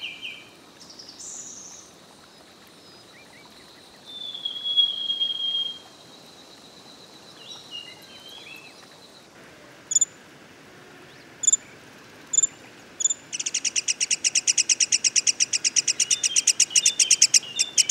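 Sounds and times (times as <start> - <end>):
bird chattering trill: 9.9 - 10.1, 12.3 - 17.9.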